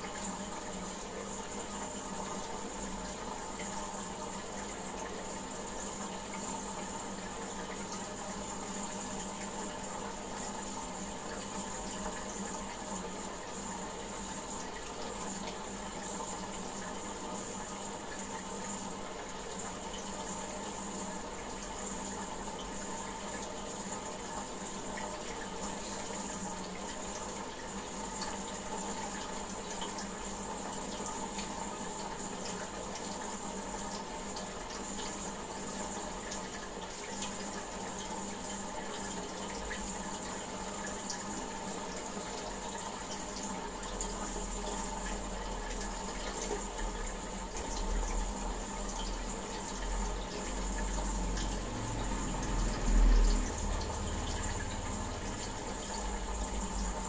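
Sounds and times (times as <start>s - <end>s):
faint constant hum: 0.0s - 57.0s
running water in aquarium: 0.0s - 57.0s.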